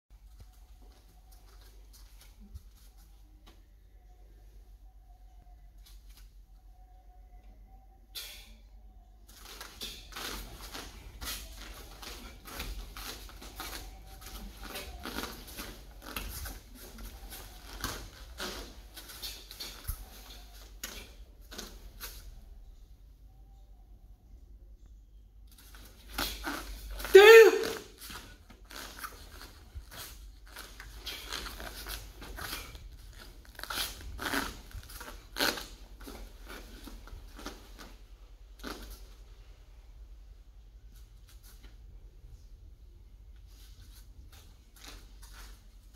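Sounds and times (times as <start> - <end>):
bare feet on foam mats: 0.2 - 3.7, 9.3 - 22.7, 25.5 - 39.8, 40.8 - 45.9.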